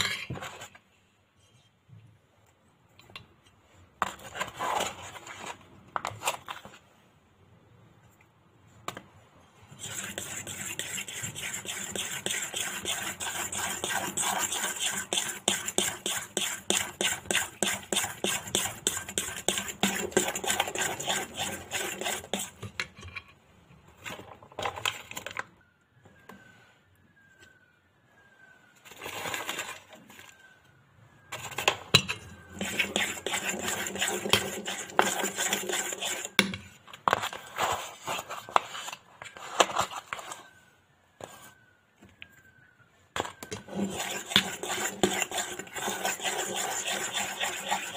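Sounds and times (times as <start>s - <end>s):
metal spoon stirring batter in bowl: 9.7s - 23.2s, 31.3s - 39.0s, 43.2s - 47.9s.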